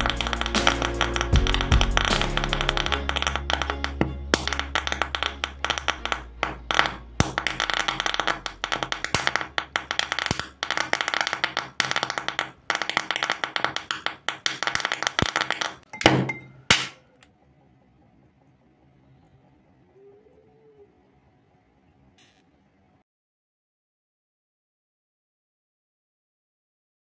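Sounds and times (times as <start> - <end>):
loud pops: 0.0 - 17.0.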